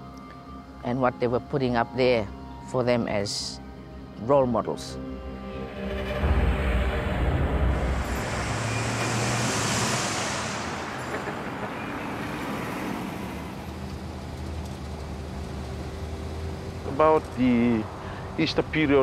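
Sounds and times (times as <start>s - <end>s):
road traffic rumble: 4.8s - 19.0s
traffic hiss: 7.7s - 19.0s.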